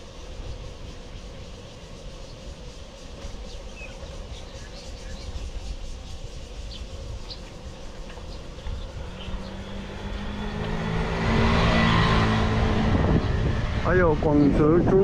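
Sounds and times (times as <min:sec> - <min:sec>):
road noise rush: 0:00.0 - 0:15.0
vehicle engine hum passing: 0:06.8 - 0:15.0.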